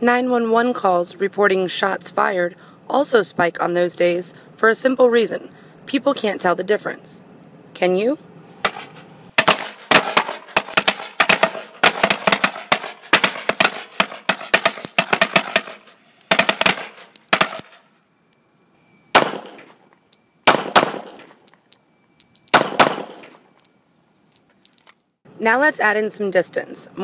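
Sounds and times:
loud single bangs: 8.6 - 17.9, 19.1 - 19.8, 20.4 - 21.4, 22.5 - 23.4
firecrackers cracking: 8.7 - 17.8, 19.2 - 19.8, 20.5 - 21.4, 22.6 - 23.4.

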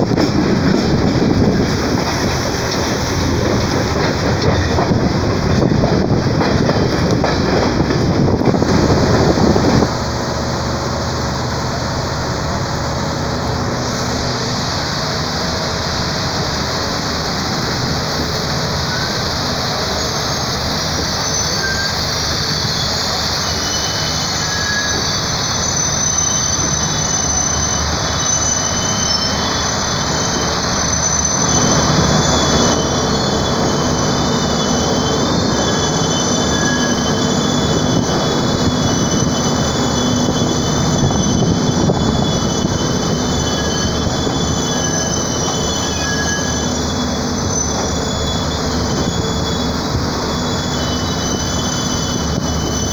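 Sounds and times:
train rolling noise: 0.0 - 52.9
train wheels squealing: 0.0 - 52.9.

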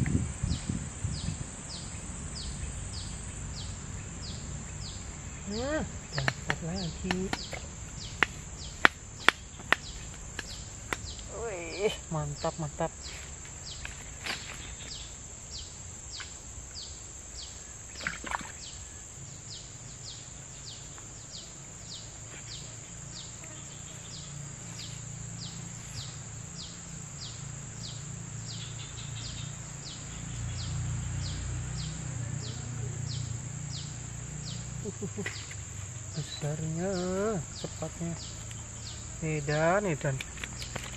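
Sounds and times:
insect chorus drone: 0.0 - 40.9
short falling insect chirp: 13.5 - 21.3.

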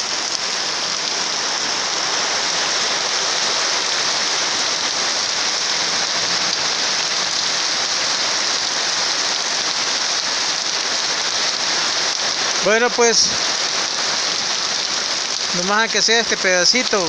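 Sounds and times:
heavy rain on metal roofs: 0.0 - 17.0.

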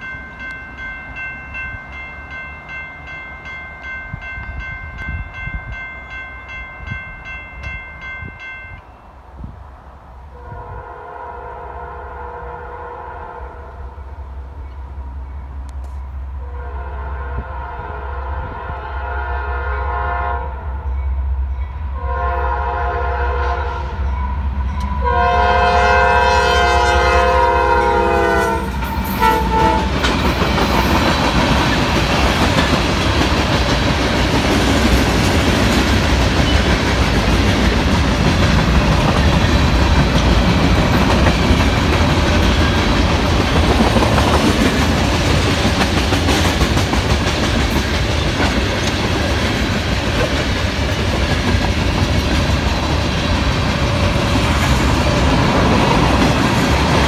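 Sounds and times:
freight train wheels rumbling: 0.0 - 57.0
locomotive air horn blasts: 10.3 - 14.2, 16.4 - 20.8, 22.0 - 30.0.

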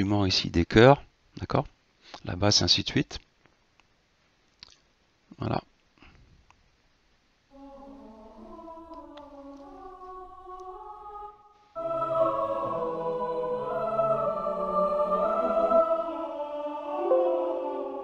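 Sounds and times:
sampled choir singing: 7.5 - 18.0.

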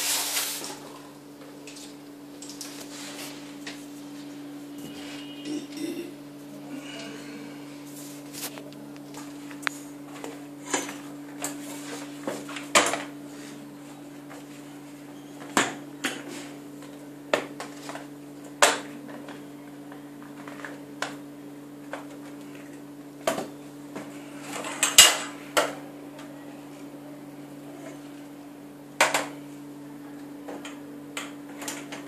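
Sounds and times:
steady low hum: 0.1 - 31.9.

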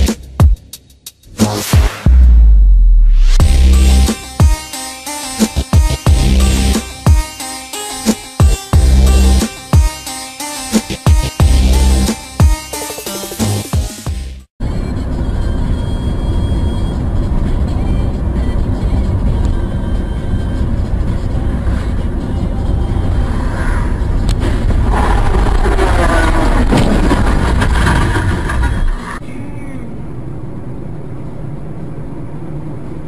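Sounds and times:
road and engine rumble: 3.4 - 4.6, 5.4 - 7.2, 8.4 - 10.0, 14.2 - 33.0.

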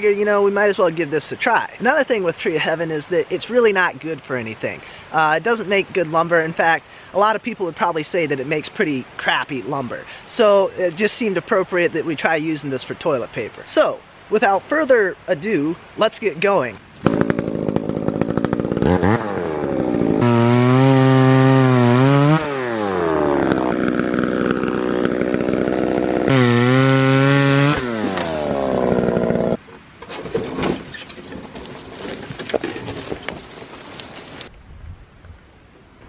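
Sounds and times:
chainsaw cutting log: 16.9 - 29.6
rustling: 29.2 - 34.6.

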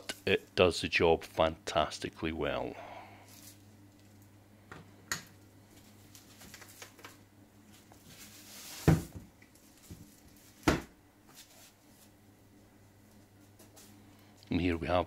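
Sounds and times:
foam and plastic wrap rustling: 7.7 - 10.6.

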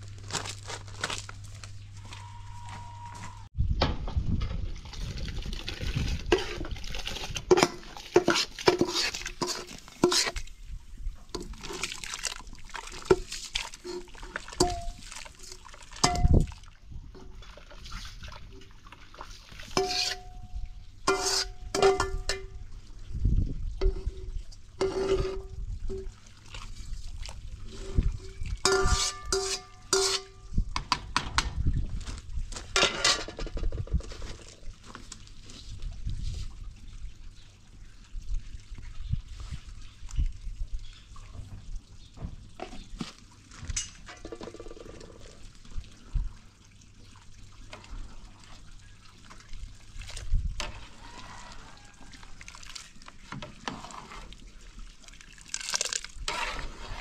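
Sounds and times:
water splashing and sloshing: 0.0 - 57.0
kitchenware clinking: 28.6 - 30.4.

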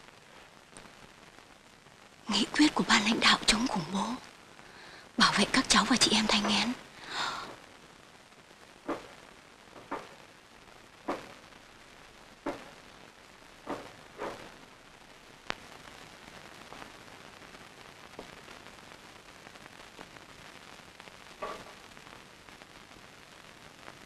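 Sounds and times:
film soundtrack hiss: 0.0 - 24.0
sharp knocks: 8.9 - 9.1, 9.8 - 10.2, 11.1 - 11.3, 12.4 - 12.7, 13.7 - 14.5.

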